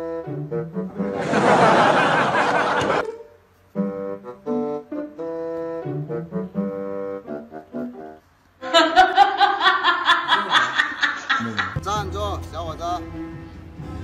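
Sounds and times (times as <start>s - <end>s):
wind instrument melody: 0.0s - 2.0s, 3.0s - 8.5s
music with quick beat: 11.7s - 14.0s.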